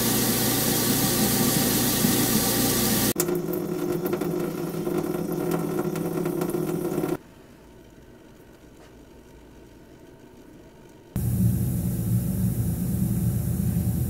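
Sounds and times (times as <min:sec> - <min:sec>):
garbage disposal motor hum: 0:00.0 - 0:07.2, 0:10.1 - 0:14.0
running tap water: 0:00.0 - 0:07.2
water dripping: 0:01.7 - 0:07.2
steady low hum: 0:09.1 - 0:14.0.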